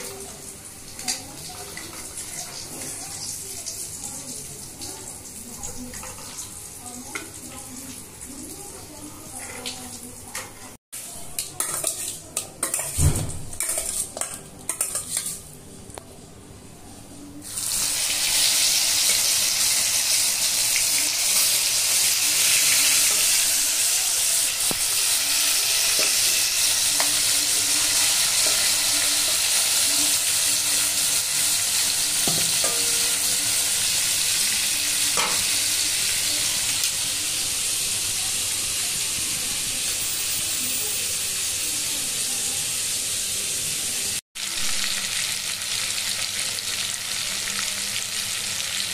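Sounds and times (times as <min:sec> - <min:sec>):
chicken sizzling in hot oil: 0:17.4 - 0:48.9.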